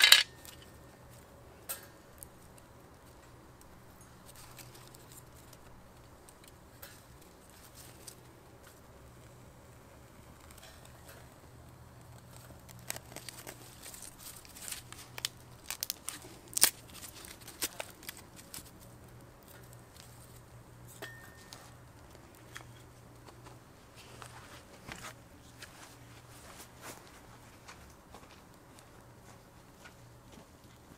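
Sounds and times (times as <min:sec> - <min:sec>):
wood fire crackling and snapping: 0:00.0 - 0:20.9.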